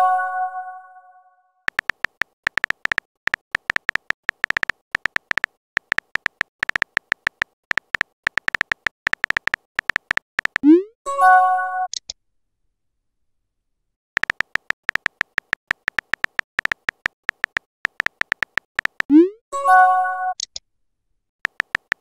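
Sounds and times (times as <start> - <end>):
keyboard tapping: 1.7 - 10.7, 14.2 - 19.2, 21.4 - 22.0.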